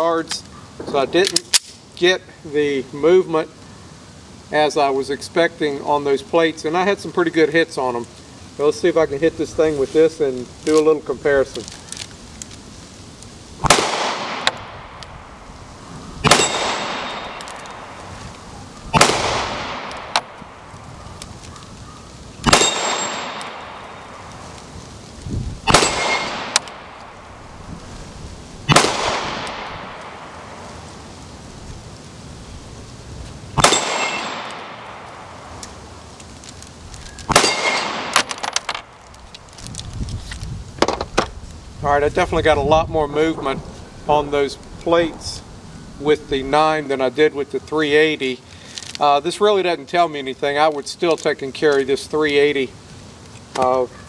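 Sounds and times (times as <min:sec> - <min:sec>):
pistol shots: 0:13.6 - 0:15.0, 0:16.2 - 0:18.0, 0:18.9 - 0:20.4, 0:22.4 - 0:24.3, 0:25.6 - 0:27.2, 0:28.7 - 0:30.6, 0:33.6 - 0:35.4, 0:37.3 - 0:38.9
bullet ringing on steel plate: 0:16.3 - 0:17.4, 0:22.5 - 0:23.5, 0:33.7 - 0:34.4, 0:37.4 - 0:38.0.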